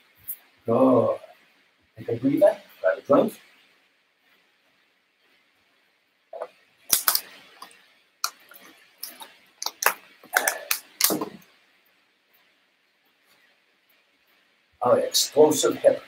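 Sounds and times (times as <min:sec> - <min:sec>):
objects being handled clattering: 0:06.9 - 0:11.5.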